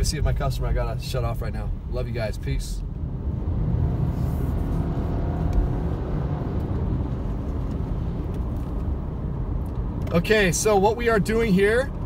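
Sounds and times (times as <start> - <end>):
car driving on wet road: 2.8 - 12.0.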